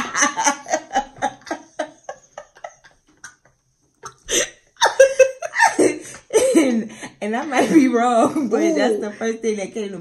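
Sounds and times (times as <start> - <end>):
women laughing: 0.0 - 6.9.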